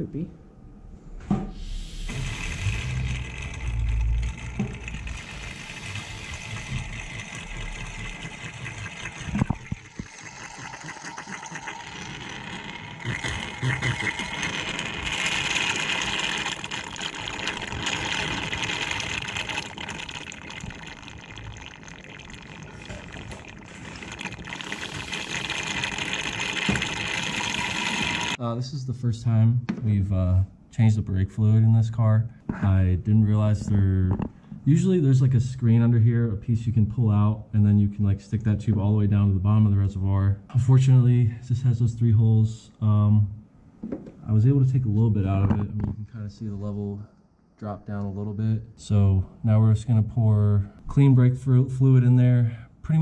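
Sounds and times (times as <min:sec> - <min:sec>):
liquid slurping through a tube: 0:01.5 - 0:28.4.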